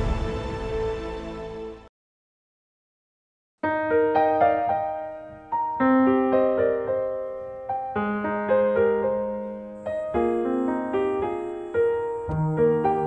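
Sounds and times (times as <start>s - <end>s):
slow piano music: 3.6s - 13.0s.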